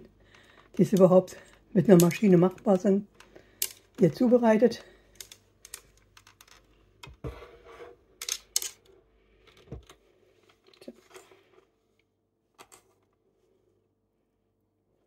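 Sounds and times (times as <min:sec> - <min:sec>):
clicks taps and rustles of hands: 0:05.1 - 0:07.2.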